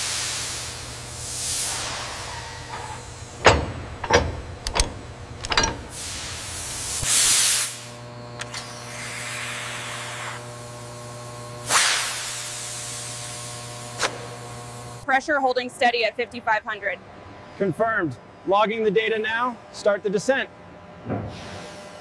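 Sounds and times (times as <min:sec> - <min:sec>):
air hissing bursts: 0:00.0 - 0:07.9, 0:11.6 - 0:14.3
machinery hum: 0:00.0 - 0:11.6
machinery knocks: 0:03.4 - 0:06.1.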